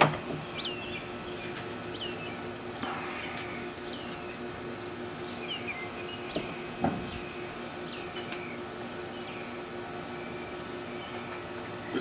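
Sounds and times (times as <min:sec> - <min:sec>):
steady low hum: 0:00.0 - 0:12.0
bird chirping: 0:00.4 - 0:02.5, 0:03.1 - 0:04.4, 0:05.2 - 0:12.0
dull thumps of panels handled: 0:06.4 - 0:07.2.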